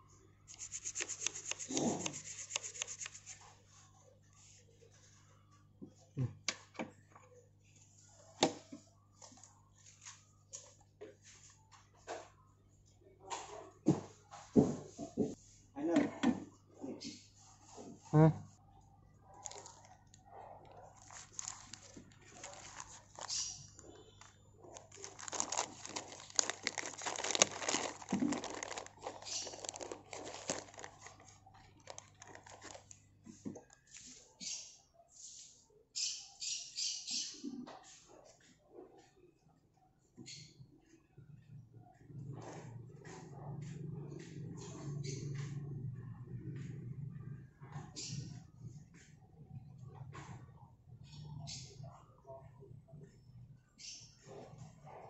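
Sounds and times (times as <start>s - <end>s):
plastic bag crinkling: 0.5s - 3.4s, 19.4s - 19.9s, 20.8s - 33.0s
small clicks and scrapes: 0.5s - 3.6s, 19.4s - 34.6s.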